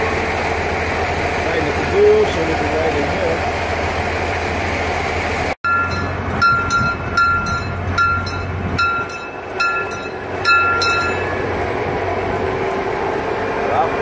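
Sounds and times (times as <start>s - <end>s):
train rumbling along: 0.0s - 14.0s
bell ringing quickly: 5.6s - 11.5s.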